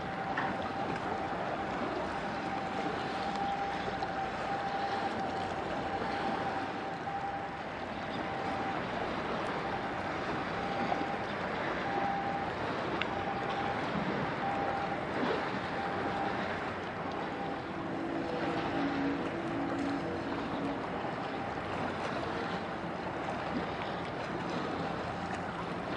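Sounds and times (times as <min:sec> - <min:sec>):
low hum: 0:00.0 - 0:25.9
wind: 0:00.0 - 0:25.9.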